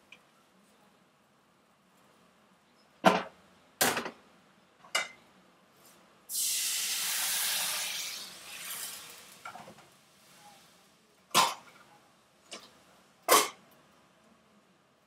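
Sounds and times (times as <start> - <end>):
water hissing on a hot pan: 6.3 - 11.1.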